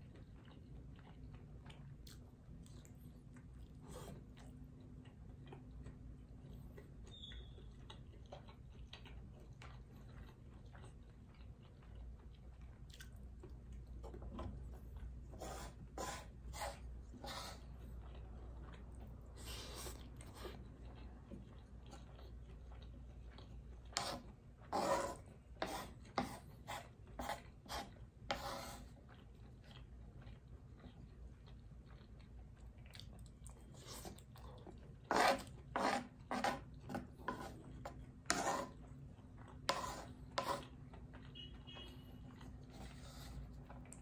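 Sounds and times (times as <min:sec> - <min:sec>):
chewing: 0:00.0 - 0:44.0
wooden utensils scraping a board: 0:24.0 - 0:28.8, 0:35.1 - 0:37.6, 0:38.3 - 0:38.7, 0:39.7 - 0:40.6.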